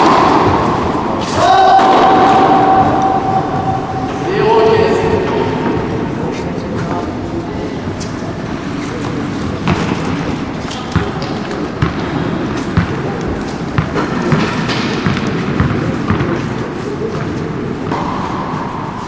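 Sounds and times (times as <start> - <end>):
tennis hall background noise: 0.0 - 19.0.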